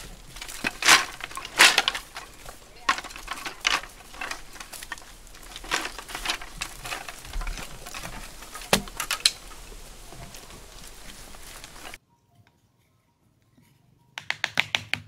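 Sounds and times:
bamboo strips rustling: 0:00.0 - 0:12.0
wet mud clods dropping: 0:00.0 - 0:12.0.

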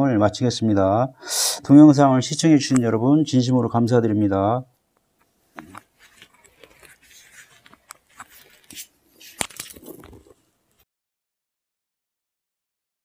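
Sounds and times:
faint rustling: 0:05.2 - 0:10.5.

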